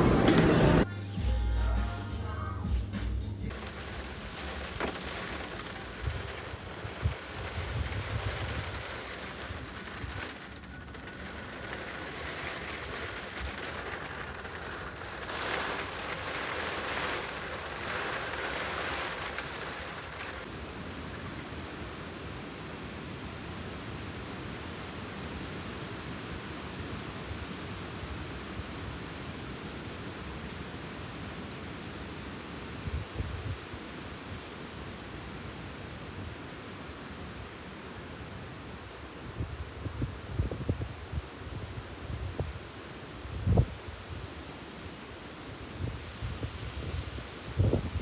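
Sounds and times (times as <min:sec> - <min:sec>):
fountain water splashing: 0:03.5 - 0:20.5
rough rustling outdoor hiss: 0:03.5 - 0:20.5.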